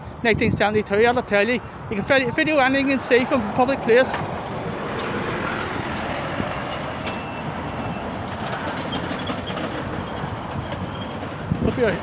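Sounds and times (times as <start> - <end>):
lorry diesel engine passing: 2.9 - 12.0.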